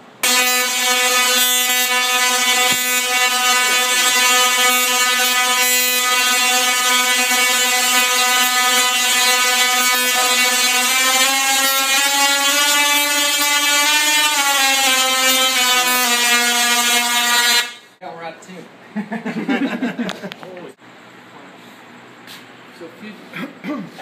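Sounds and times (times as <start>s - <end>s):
tesla coil rasping buzz: 0.0s - 18.0s.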